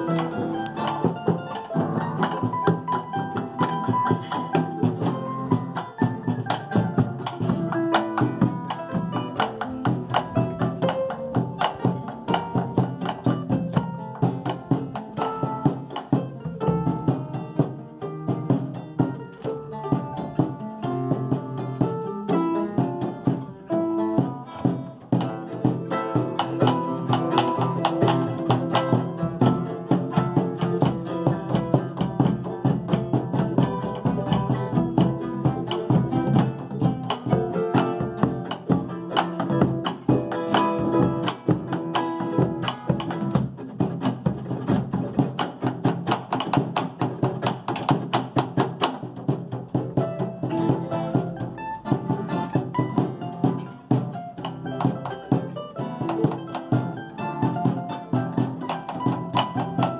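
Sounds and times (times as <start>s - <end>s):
acoustic guitar: 0.0s - 59.9s
charango: 0.0s - 59.9s.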